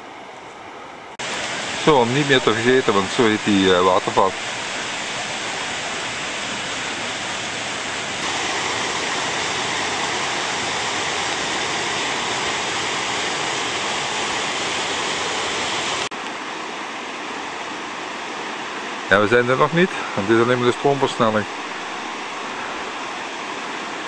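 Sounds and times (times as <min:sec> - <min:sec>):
river rapids rushing: 0:00.0 - 0:24.0.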